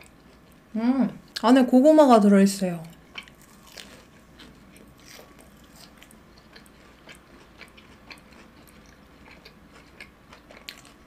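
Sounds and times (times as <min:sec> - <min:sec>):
close-miked chewing: 0:02.8 - 0:11.0.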